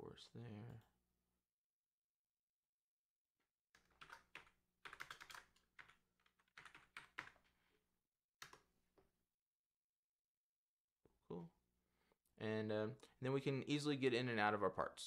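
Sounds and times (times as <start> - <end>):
faint keyboard typing: 3.8 - 7.6, 8.4 - 8.7.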